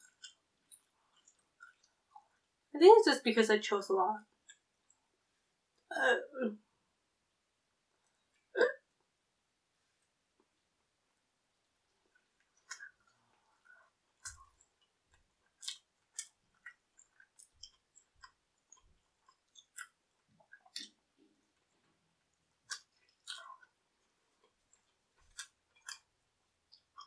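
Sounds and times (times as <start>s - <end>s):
person chewing pizza: 0.0s - 2.5s, 11.9s - 27.0s.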